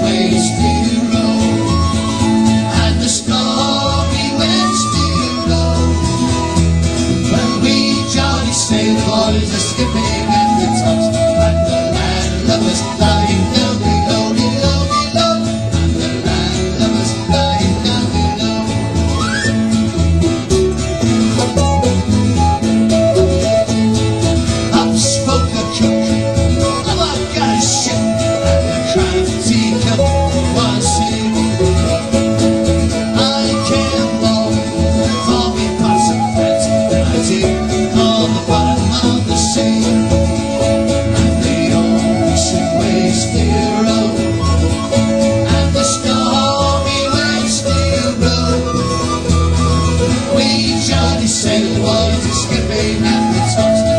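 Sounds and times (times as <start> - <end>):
folk band playing a sea shanty: 0.0 - 53.9
guitar rising slide: 0.0 - 53.9
strummed acoustic guitar: 0.0 - 53.9.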